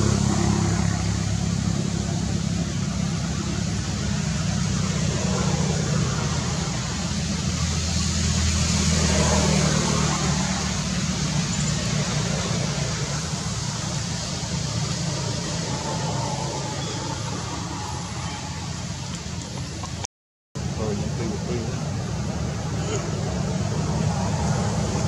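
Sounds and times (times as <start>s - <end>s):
traffic rumble: 0.0s - 25.0s.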